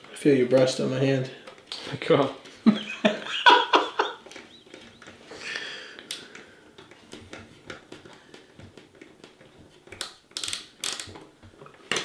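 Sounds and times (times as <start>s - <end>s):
screwdriver clicking on metal screws: 9.9s - 11.2s.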